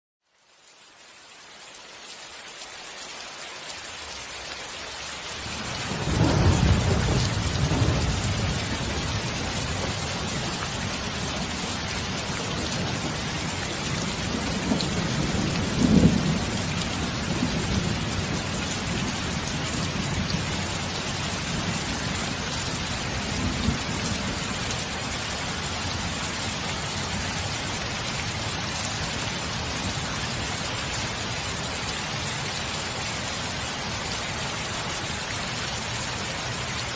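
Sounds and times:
steady rain: 0:00.2 - 0:36.9
thunder rolling: 0:05.7 - 0:11.5, 0:12.1 - 0:20.6
sharp thunder clap: 0:05.9 - 0:09.1.

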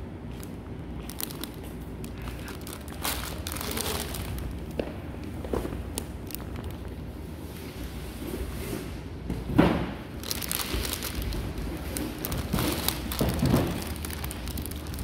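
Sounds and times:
cellophane crinkling: 0:00.4 - 0:04.8, 0:05.6 - 0:07.0, 0:10.2 - 0:15.0.

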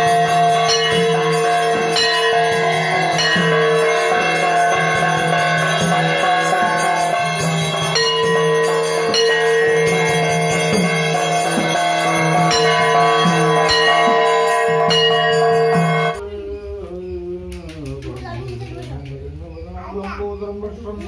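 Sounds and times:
metal gongs ringing: 0:00.0 - 0:16.2.

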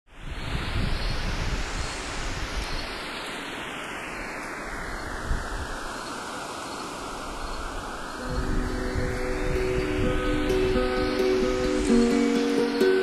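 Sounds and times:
synthesized noise sweep: 0:07.2 - 0:12.9.

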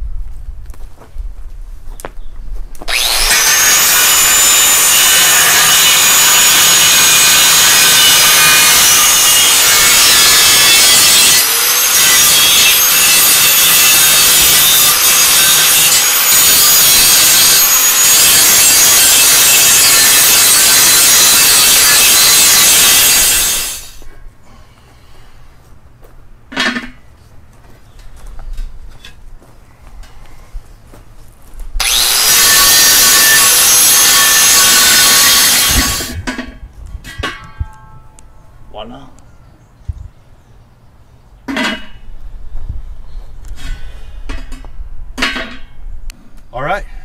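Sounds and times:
power tool grinding metal: 0:02.9 - 0:24.1, 0:31.8 - 0:36.4.

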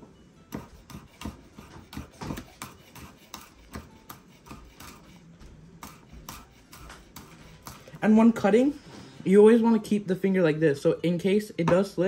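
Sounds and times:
knife chopping on cutting board: 0:00.5 - 0:08.0.

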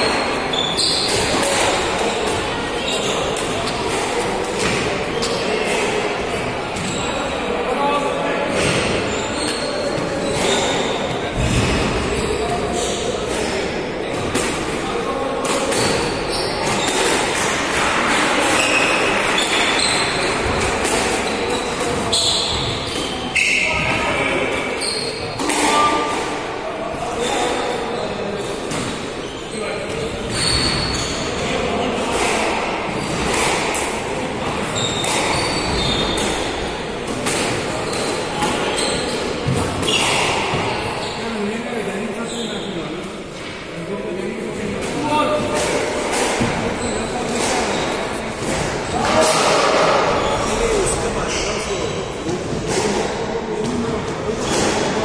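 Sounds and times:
shoes squeaking on wooden floor: 0:00.0 - 0:02.2, 0:08.6 - 0:11.0, 0:18.6 - 0:25.9, 0:28.8 - 0:31.5, 0:34.4 - 0:36.6, 0:46.3 - 0:52.4.

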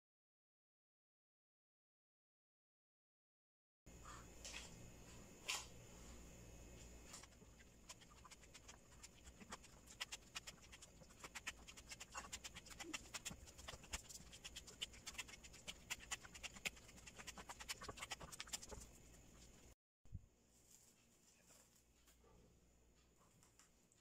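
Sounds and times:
dough kneaded sticky squelches: 0:04.0 - 0:19.8.

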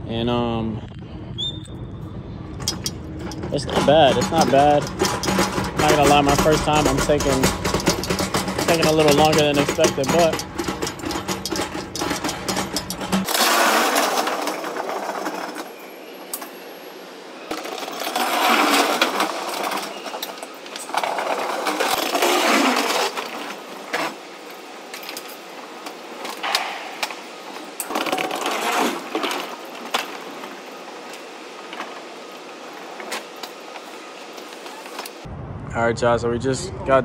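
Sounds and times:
clanks and knocks: 0:02.6 - 0:15.7, 0:26.2 - 0:27.2
pallet jack wheels rattling: 0:02.6 - 0:16.4, 0:17.5 - 0:35.2.

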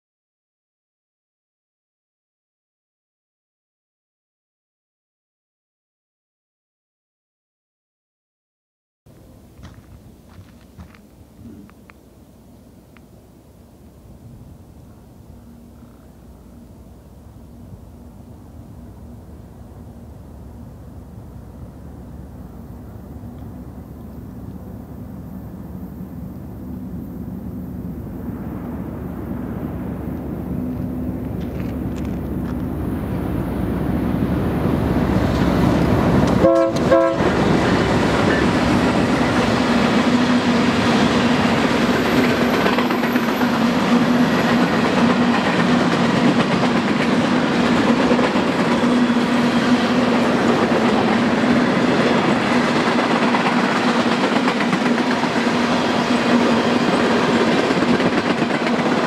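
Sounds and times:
diesel locomotive engine: 0:09.1 - 0:59.0
freight cars clickety-clack: 0:30.6 - 0:32.8, 0:35.2 - 0:59.0
train horn: 0:36.3 - 0:38.6.

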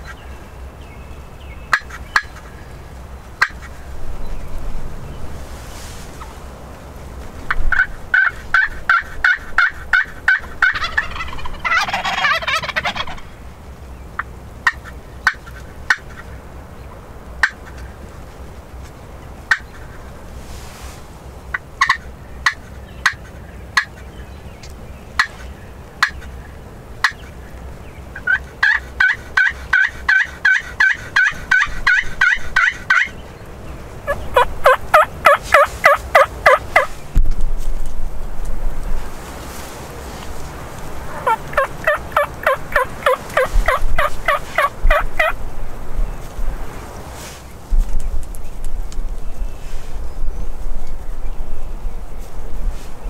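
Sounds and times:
turkeys calling: 0:01.7 - 0:02.7, 0:03.4 - 0:03.8, 0:07.5 - 0:13.4, 0:14.2 - 0:16.4, 0:17.4 - 0:18.0, 0:19.5 - 0:20.1, 0:21.5 - 0:26.4, 0:27.0 - 0:37.0, 0:40.2 - 0:45.5
turkey gobble: 0:07.5 - 0:13.4, 0:21.5 - 0:23.2, 0:28.2 - 0:33.2, 0:34.0 - 0:36.9, 0:41.0 - 0:45.4.

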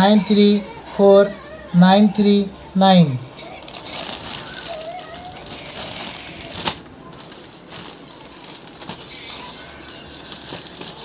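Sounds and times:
plastic bag crinkling: 0:03.4 - 0:11.0.

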